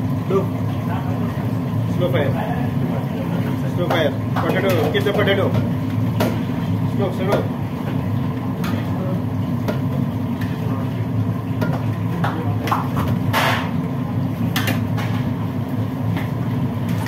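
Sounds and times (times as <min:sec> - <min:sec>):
kitchen machinery drone: 0:00.0 - 0:17.0
utensils and trays clattering: 0:03.7 - 0:06.5, 0:11.6 - 0:13.8.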